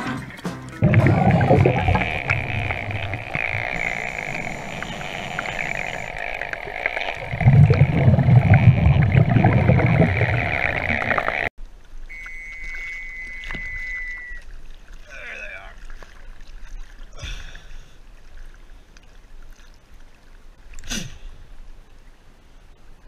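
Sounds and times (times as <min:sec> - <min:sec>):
water sounds: 0:00.0 - 0:23.0
scuba regulator breathing: 0:00.8 - 0:08.7
bubbles gurgling underwater: 0:00.8 - 0:11.5.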